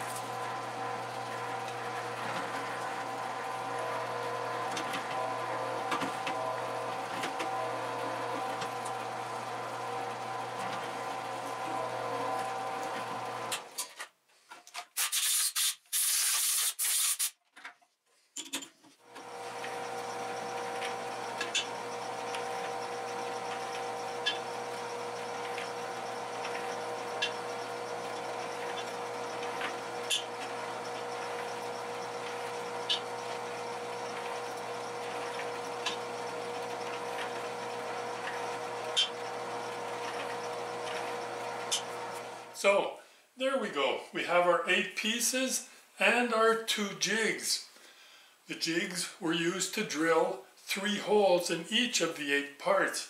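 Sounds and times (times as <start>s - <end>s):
drill press drilling steel: 0.0s - 13.8s, 19.1s - 42.7s.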